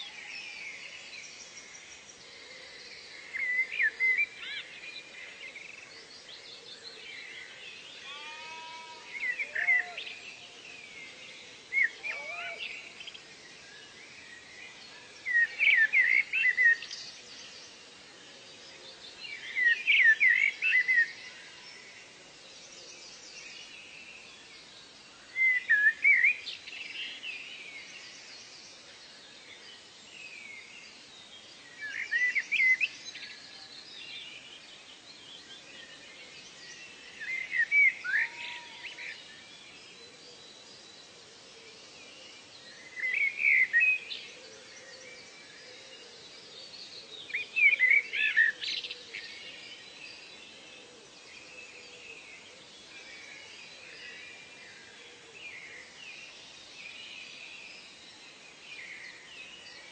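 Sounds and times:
faint hiss of insects and birds: 0.0s - 59.9s.

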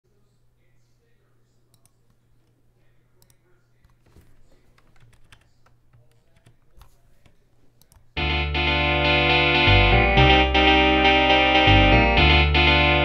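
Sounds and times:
computer keyboard clicking: 3.2s - 8.2s
synthesized band chords: 8.2s - 13.0s.

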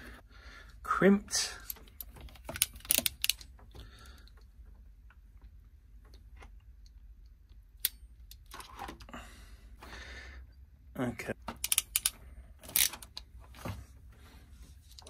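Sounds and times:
pliers ticking: 1.6s - 3.5s, 11.6s - 13.3s.

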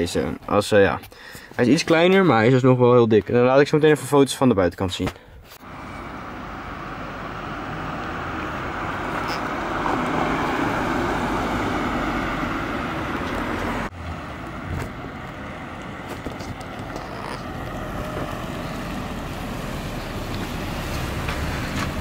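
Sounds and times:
car driving past: 5.6s - 22.0s
faint approaching car: 5.6s - 22.0s.

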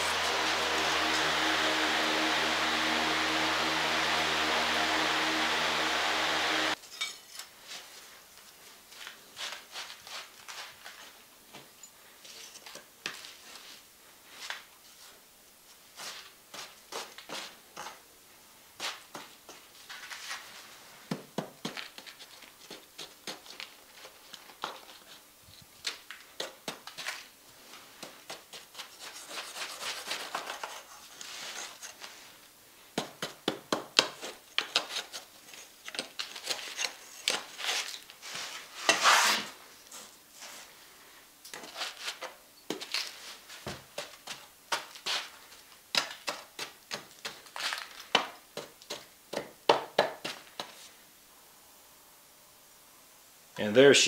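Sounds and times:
sand scraping on bronze: 0.0s - 6.8s, 38.2s - 39.6s.

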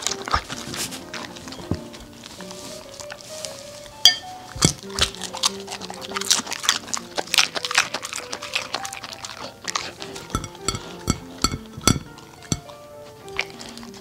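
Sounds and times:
dog chewing food: 0.0s - 14.0s
soft background music: 0.0s - 14.0s
plate clinking: 4.0s - 5.0s, 10.0s - 12.8s.

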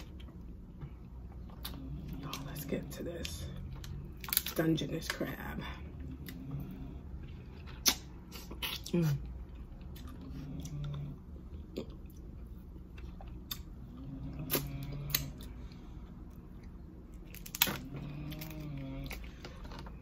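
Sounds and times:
chewing: 6.0s - 20.0s
crab shell cracking: 17.3s - 18.5s.

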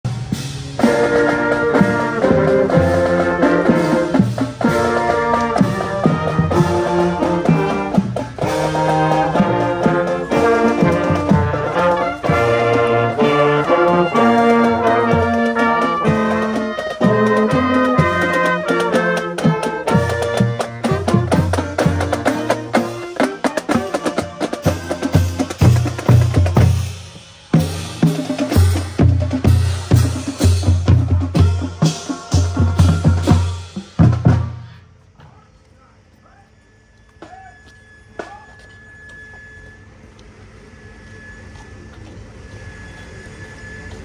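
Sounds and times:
brass band playing: 0.1s - 34.9s.

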